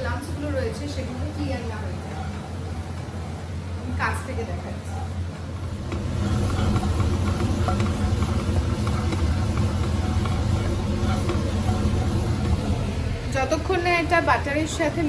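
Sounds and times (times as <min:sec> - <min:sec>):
range hood fan humming: 0:00.0 - 0:15.0
roux sizzling softly: 0:00.0 - 0:15.0
wooden spatula scraping: 0:00.9 - 0:03.4, 0:05.6 - 0:15.0.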